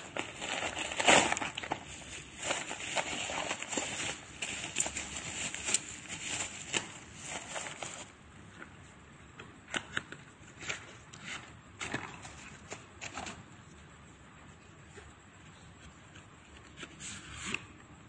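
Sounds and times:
paper and cardboard box handling: 0.0 - 8.1
plastic packaging crinkling: 0.0 - 8.2.

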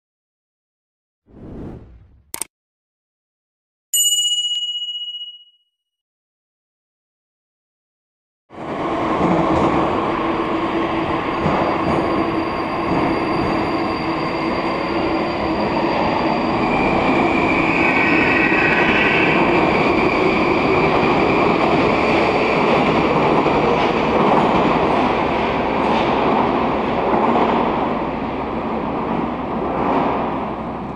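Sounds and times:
metro train rushing rumble: 8.5 - 30.9
high train whine: 8.6 - 30.9.

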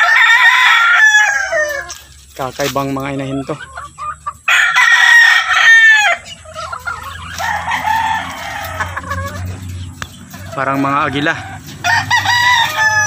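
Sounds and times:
rooster crowing: 0.0 - 2.0, 4.5 - 6.3, 7.0 - 9.7, 11.0 - 13.0
chickens clucking: 0.0 - 13.0.

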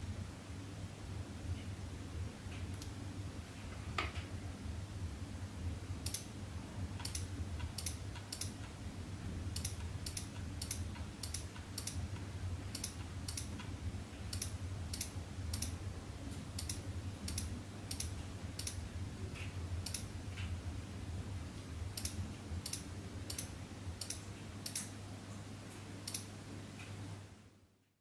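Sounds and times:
steady low hum: 0.0 - 27.8
computer mouse clicking: 6.0 - 6.3, 7.0 - 8.8, 9.6 - 12.0, 12.7 - 13.7, 14.3 - 15.8, 16.6 - 18.8, 19.8 - 20.1, 22.0 - 24.9, 26.0 - 26.3.

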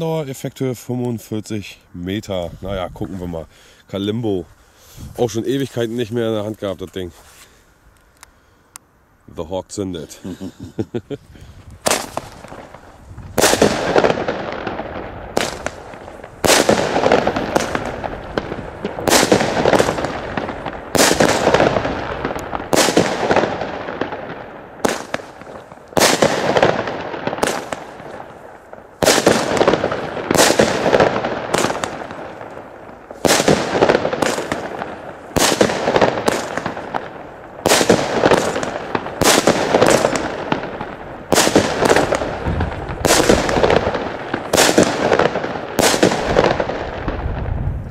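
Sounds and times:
firework battery bangs: 11.8 - 47.6.

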